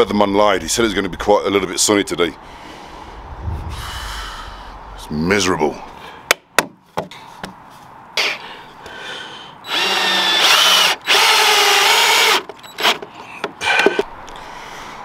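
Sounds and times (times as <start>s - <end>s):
cordless drill driving screw: 9.7s - 13.1s.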